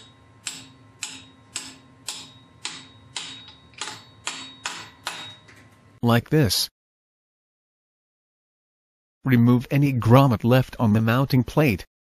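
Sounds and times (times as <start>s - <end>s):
hammer tapping on a socket: 0.0s - 5.5s.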